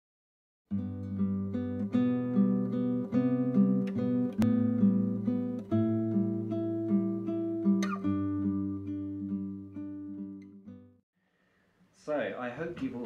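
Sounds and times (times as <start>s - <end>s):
acoustic guitar melody: 0.7s - 11.0s.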